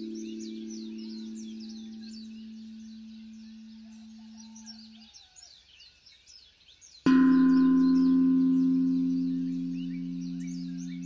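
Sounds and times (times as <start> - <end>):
struck bell ringing: 0.0 - 4.7, 7.1 - 11.0
ringing tone: 0.0 - 5.0, 7.1 - 11.0
birds chirping: 0.0 - 11.0.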